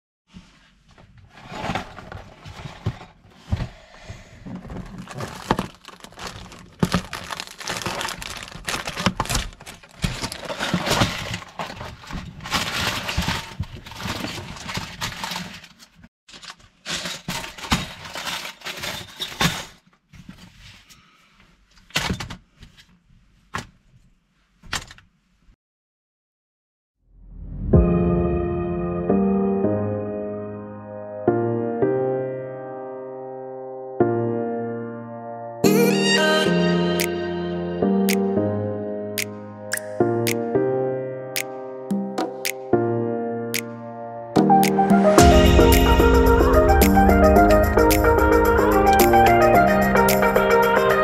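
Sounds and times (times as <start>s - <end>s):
plastic bags crinkling: 4.6s - 19.8s
cardboard box tearing: 4.9s - 15.4s.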